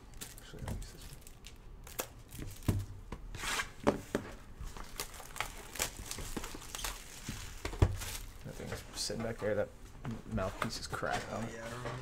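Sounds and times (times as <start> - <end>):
plastic wrap crinkling and tearing: 0.1 - 2.9, 4.6 - 8.6.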